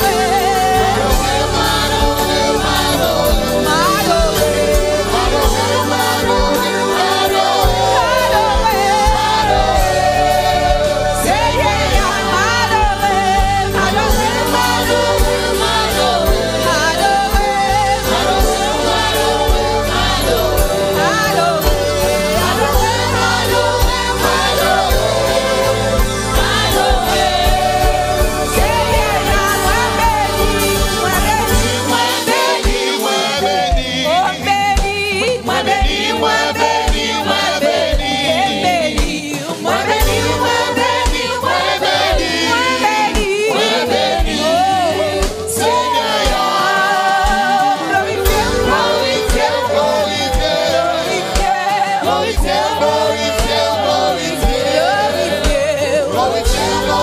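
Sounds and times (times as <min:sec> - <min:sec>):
deep bass: 0:00.0 - 0:32.2
backing voices singing: 0:00.0 - 0:57.0
gospel music accompaniment: 0:00.0 - 0:57.0
woman singing into a microphone: 0:00.0 - 0:57.0.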